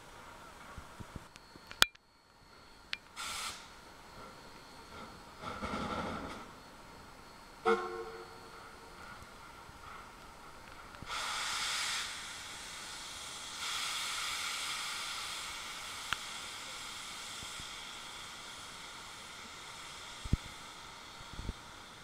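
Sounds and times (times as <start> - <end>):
steam locomotive venting steam: 3.1 - 6.7, 7.5 - 22.0.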